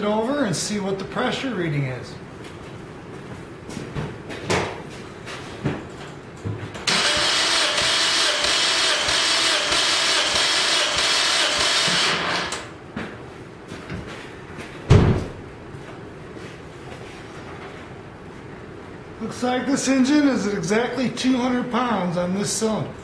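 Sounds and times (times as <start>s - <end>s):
engine cranking without firing: 6.9s - 12.7s
loud thump: 14.9s - 15.4s.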